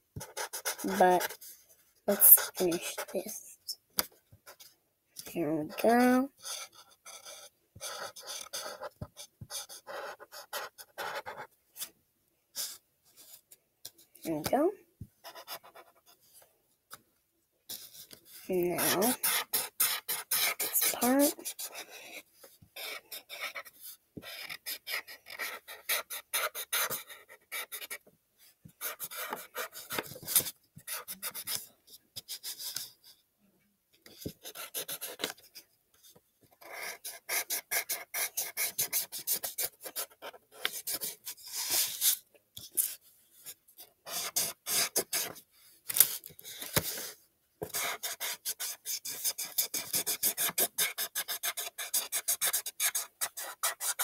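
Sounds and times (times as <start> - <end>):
felt-tip marker rubbing on paper: 0.2 - 1.5, 2.1 - 3.4, 17.7 - 22.2, 22.8 - 28.0, 34.2 - 35.3, 36.6 - 42.2, 44.0 - 45.4, 47.7 - 54.0.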